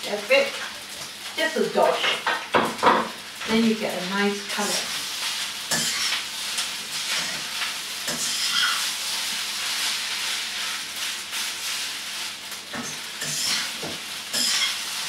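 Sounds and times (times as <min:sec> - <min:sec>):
rice sizzling in a wok: 0:00.0 - 0:15.0
spatula scraping and knocking pan: 0:05.7 - 0:06.2, 0:12.7 - 0:15.0.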